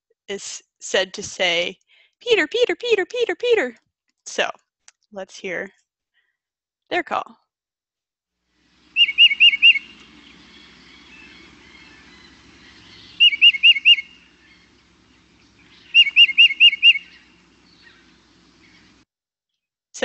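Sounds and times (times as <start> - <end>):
faint recording hiss: 8.5 - 19.0
titmouse whistled song: 9.0 - 10.1, 12.8 - 14.3, 15.7 - 18.0.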